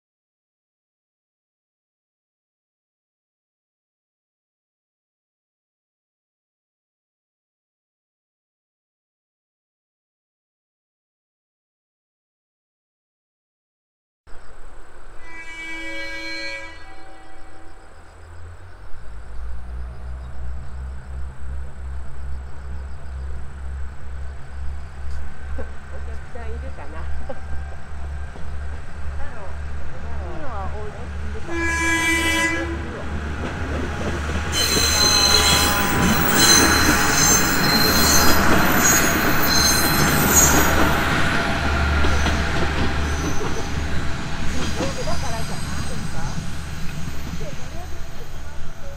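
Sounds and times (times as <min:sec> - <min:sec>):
diesel railcar engine passing: 0:14.3 - 0:48.9
rail rumble: 0:14.3 - 0:48.9
high-pitched wheel squeal: 0:15.2 - 0:17.9, 0:34.5 - 0:41.0
train horn: 0:15.2 - 0:18.0, 0:31.4 - 0:33.6, 0:34.4 - 0:46.4
diesel engine rumbling: 0:17.7 - 0:34.7.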